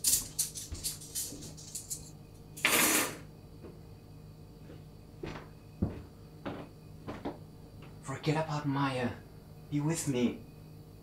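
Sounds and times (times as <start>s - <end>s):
soft thuds: 4.7s - 7.4s.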